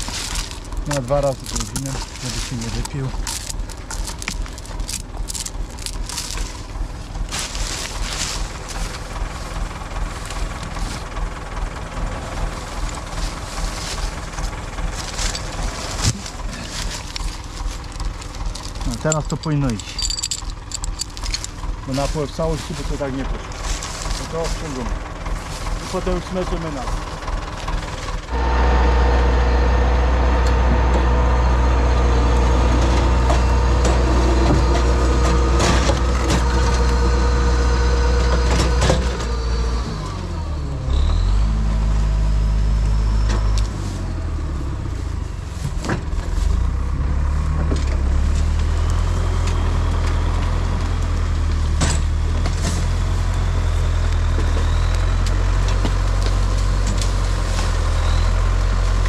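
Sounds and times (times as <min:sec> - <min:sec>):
diesel engine running hard: 0:00.0 - 0:59.0
winch dragging logs on cable: 0:12.4 - 0:28.5.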